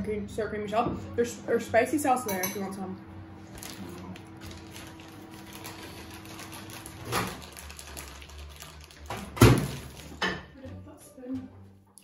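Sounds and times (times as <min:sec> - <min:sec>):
tortilla wrap rustling: 0:03.4 - 0:10.2.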